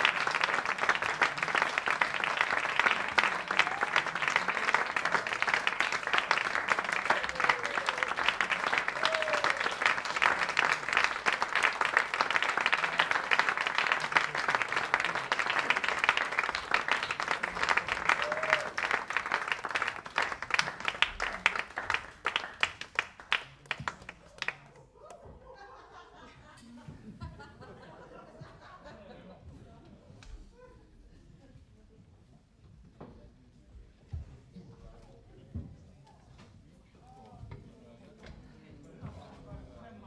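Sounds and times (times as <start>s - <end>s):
audience applauding: 0.0s - 25.2s.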